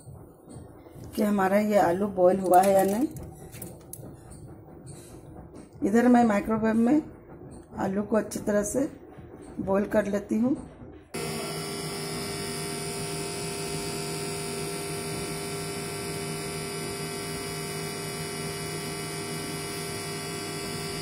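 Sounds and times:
microwave oven humming: 0:11.2 - 0:21.0.

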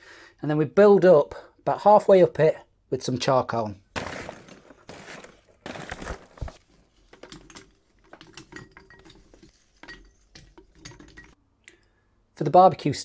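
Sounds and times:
charcoal rustling out of paper sack: 0:03.9 - 0:07.2
charcoal lumps clicking and knocking: 0:03.9 - 0:11.4.

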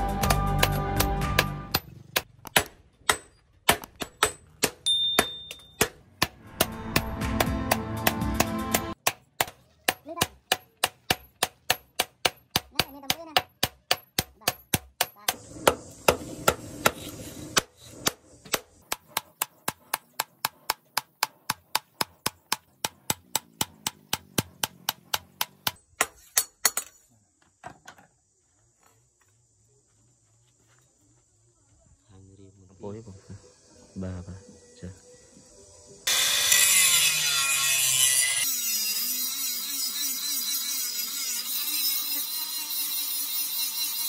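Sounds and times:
hammer striking steel anvil: 0:00.2 - 0:17.0.

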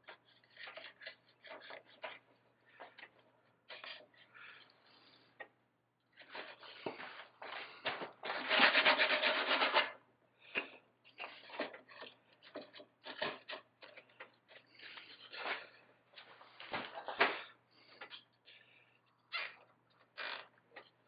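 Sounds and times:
block plane scraping wood: 0:08.3 - 0:10.0
hand sanding with sandpaper: 0:08.4 - 0:10.0.

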